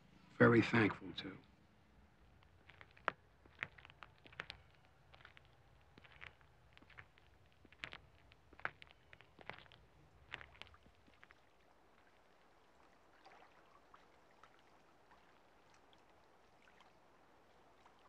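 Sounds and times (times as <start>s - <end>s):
water lapping at shore: 1.8s - 18.0s
footsteps on concrete: 2.3s - 11.3s.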